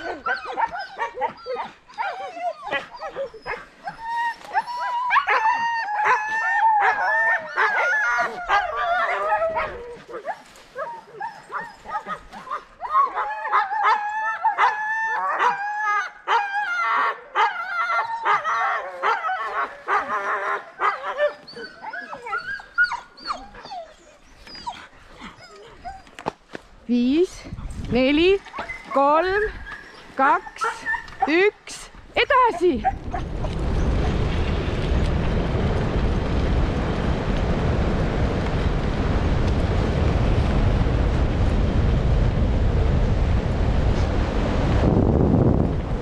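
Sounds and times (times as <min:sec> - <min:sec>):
dogs barking and yelping: 0:00.0 - 0:26.4, 0:28.4 - 0:31.4, 0:32.3 - 0:34.3.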